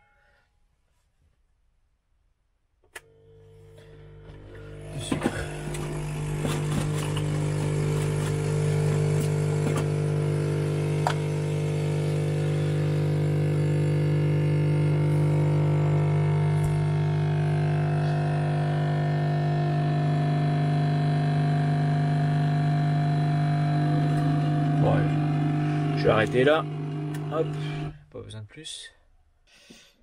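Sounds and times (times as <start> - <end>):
espresso machine pump humming: 3.0 - 28.0
pump switch click: 10.9 - 11.3, 23.9 - 27.9.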